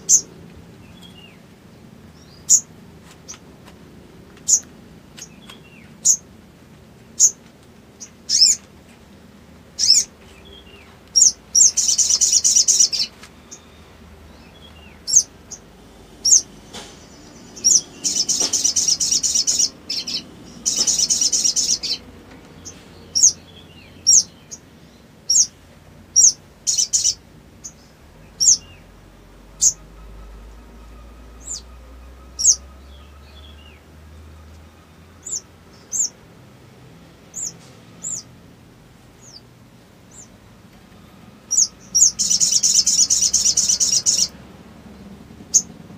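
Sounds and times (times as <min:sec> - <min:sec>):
bird chirping: 0:00.0 - 0:01.5, 0:02.1 - 0:03.4, 0:04.4 - 0:06.3, 0:07.2 - 0:07.4, 0:08.0 - 0:08.7, 0:09.8 - 0:36.3, 0:37.3 - 0:38.4, 0:39.2 - 0:39.5, 0:40.1 - 0:45.8
bird trills: 0:08.3 - 0:08.6, 0:09.8 - 0:22.0, 0:26.2 - 0:27.8, 0:29.5 - 0:33.8, 0:41.5 - 0:44.4, 0:45.5 - 0:45.7.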